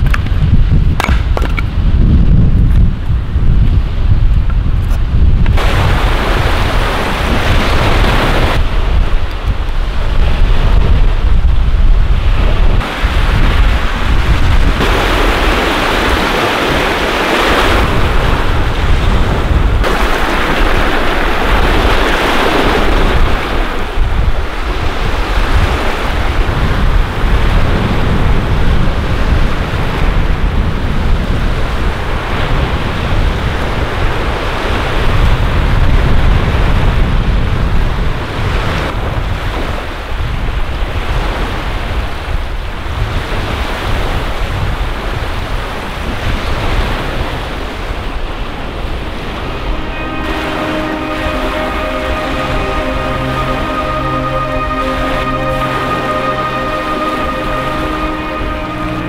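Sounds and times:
wind buffeting microphone: 0:00.0 - 0:50.5
rushing water: 0:05.5 - 0:30.8, 0:38.8 - 0:59.0.

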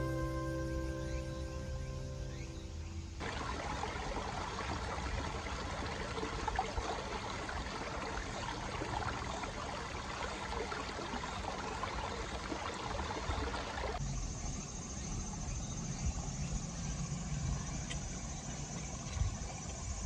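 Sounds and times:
stream splashing over stones: 0:03.2 - 0:14.0.

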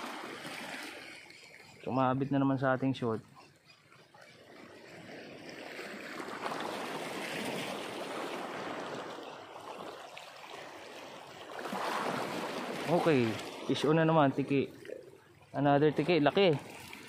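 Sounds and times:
shallow water sloshing and splashing: 0:00.0 - 0:17.0.

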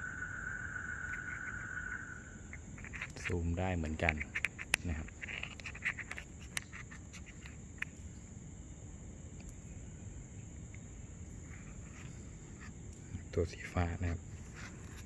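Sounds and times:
night insects chorus: 0:00.0 - 0:15.0.

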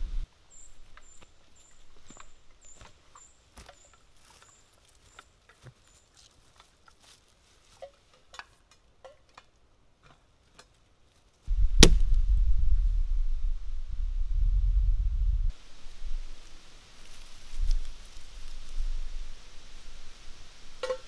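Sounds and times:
low rumble: 0:00.0 - 0:00.2, 0:11.5 - 0:15.5
footsteps on forest floor: 0:00.6 - 0:08.7, 0:15.8 - 0:19.0
twigs crackling: 0:00.6 - 0:09.6, 0:15.5 - 0:20.9
axe striking a log: 0:11.8 - 0:12.2.

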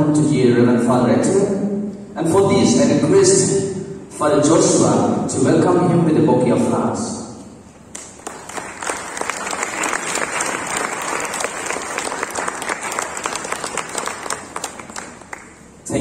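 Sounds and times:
audience clapping: 0:07.9 - 0:15.8.

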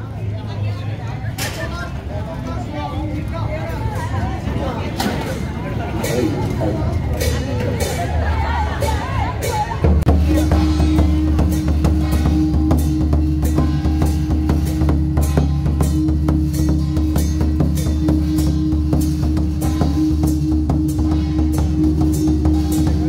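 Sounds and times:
brass gong strokes: 0:10.2 - 0:23.0.

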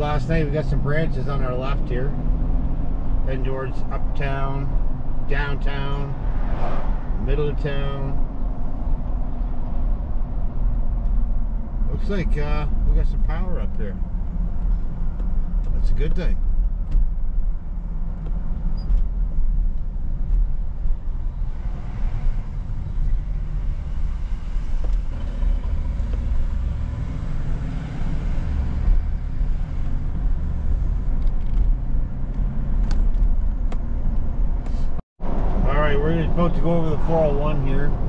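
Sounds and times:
vehicle engine rumble inside cabin: 0:08.1 - 0:38.0.

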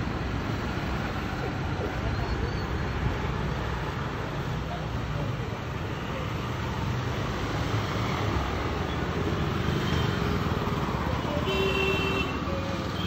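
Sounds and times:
street traffic: 0:00.0 - 0:13.0
vehicle horn toot: 0:11.5 - 0:12.4.

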